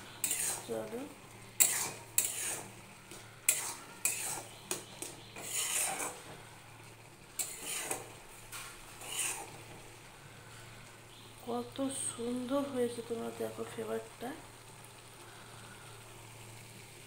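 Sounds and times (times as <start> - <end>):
spatula scraping metal pan: 0.2 - 0.9, 1.6 - 6.6, 7.4 - 9.8.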